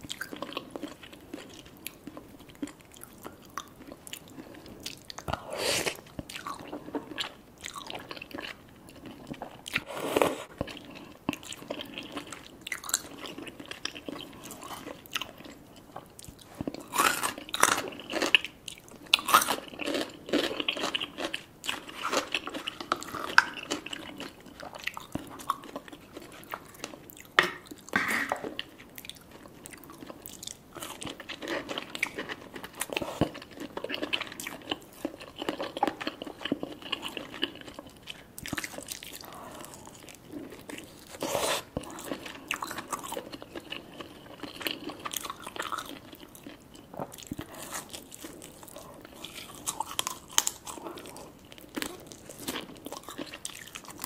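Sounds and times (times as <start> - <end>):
slurping noodles: 41.2 - 41.7.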